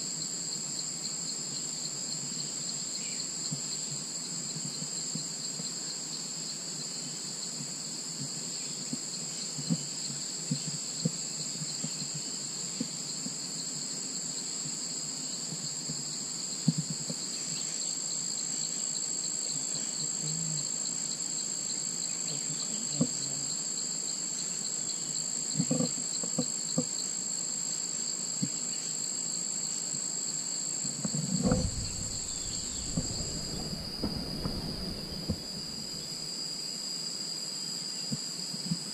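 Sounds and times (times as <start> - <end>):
insect chorus shrilling: 0.1 - 38.6
low rumble: 31.2 - 36.8.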